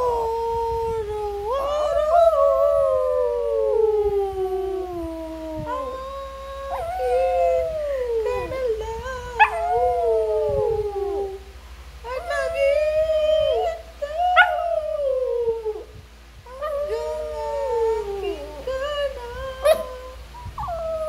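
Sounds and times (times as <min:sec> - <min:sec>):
dog howling: 0:05.6 - 0:08.5, 0:09.3 - 0:11.4, 0:12.3 - 0:15.9.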